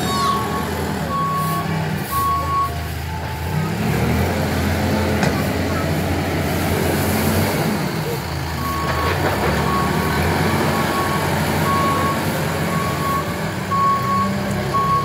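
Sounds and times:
reversing alarm beeps: 0.0s - 3.3s, 10.7s - 15.0s
diesel engine running: 0.0s - 15.0s.

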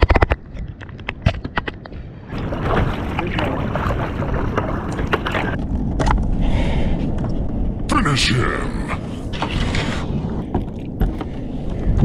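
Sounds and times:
sharp clicks and knocks: 0.0s - 2.0s
water splashing around kayak: 2.2s - 6.4s, 9.0s - 12.0s.

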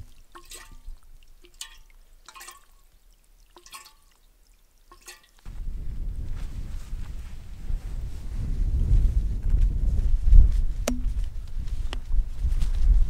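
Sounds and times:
liquid glugging into bottle: 0.0s - 5.4s
wind buffeting microphone: 5.5s - 13.0s.

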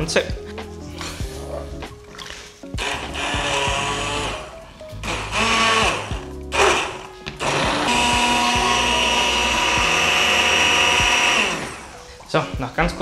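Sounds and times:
immersion blender whirring: 2.8s - 12.0s.

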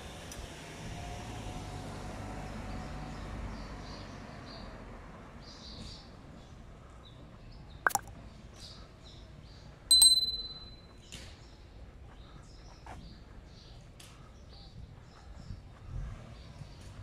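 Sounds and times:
quiet street ambience: 0.0s - 17.0s
double mouse click: 7.9s - 8.1s
bright bell ding: 9.9s - 10.9s.

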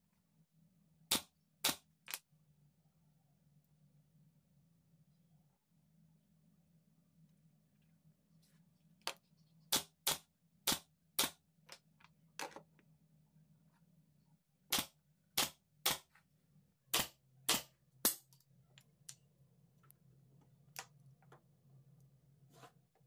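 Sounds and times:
nail gun firing into wood: 14.7s - 16.0s.

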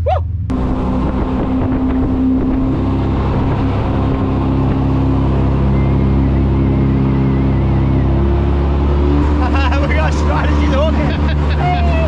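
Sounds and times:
boat engine drone: 0.0s - 12.0s
wind noise on microphone: 0.5s - 6.1s
water rushing: 0.5s - 12.0s.

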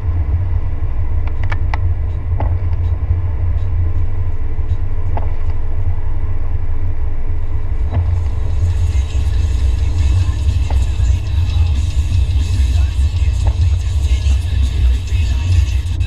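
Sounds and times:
car rumble on wet road: 7.5s - 16.0s.

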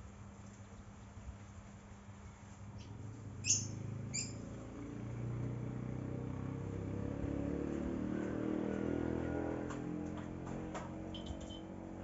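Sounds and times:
bird chirps: 2.8s - 4.4s
vehicle engine humming: 2.8s - 12.0s.

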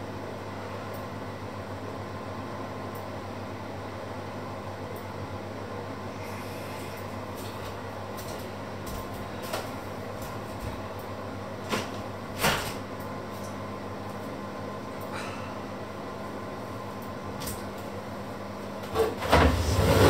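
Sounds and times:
steady low hum: 0.0s - 20.0s
knocks and clatters in kitchen: 11.6s - 12.8s.

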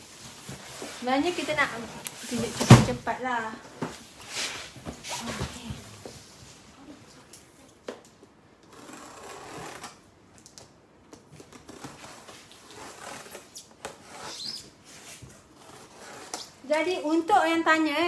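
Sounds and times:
rustling plastic and cardboard: 0.0s - 6.7s.

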